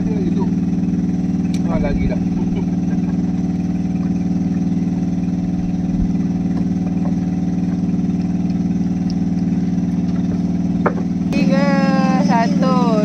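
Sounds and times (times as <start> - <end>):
boat engine idling: 0.0 - 13.0.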